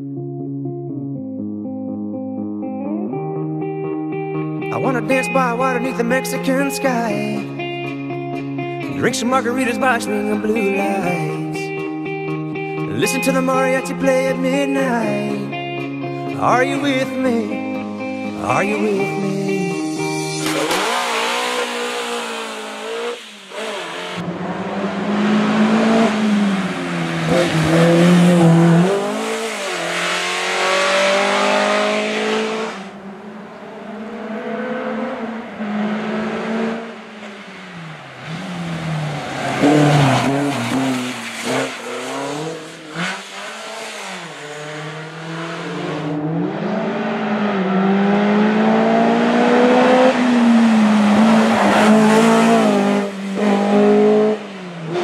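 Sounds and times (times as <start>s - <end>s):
race car engine revving: 18.7s - 55.0s.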